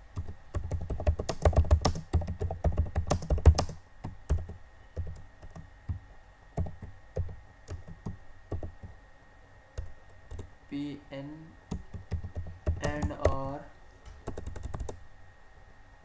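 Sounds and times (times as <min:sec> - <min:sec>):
typing on computer keyboard: 0:00.2 - 0:05.6, 0:06.6 - 0:08.9, 0:09.8 - 0:10.5, 0:11.7 - 0:13.5, 0:14.2 - 0:15.0.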